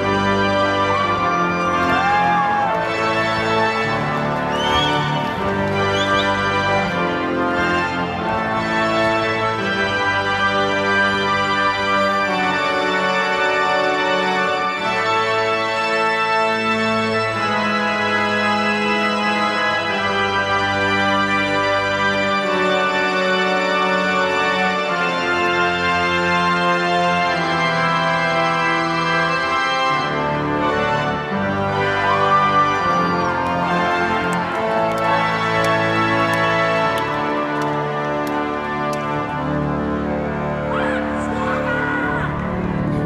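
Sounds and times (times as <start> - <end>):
pipe organ chords: 0.0 - 43.0.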